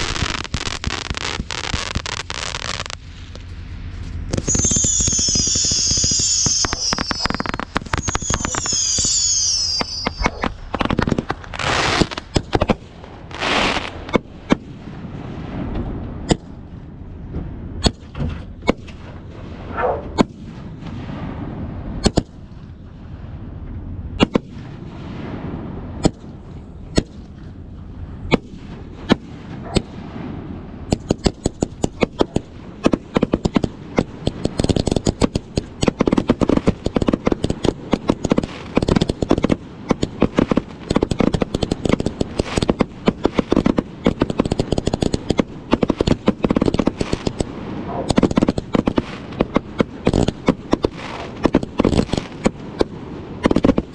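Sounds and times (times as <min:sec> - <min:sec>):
firework bangs and pops: 0:00.0 - 0:53.9
firework whistles falling in pitch: 0:04.3 - 0:10.6.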